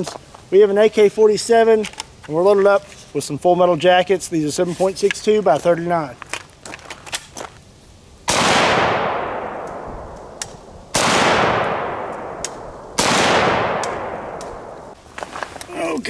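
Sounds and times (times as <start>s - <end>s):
gunshot echo: 8.3s - 15.0s
rifle shots: 8.3s - 15.0s.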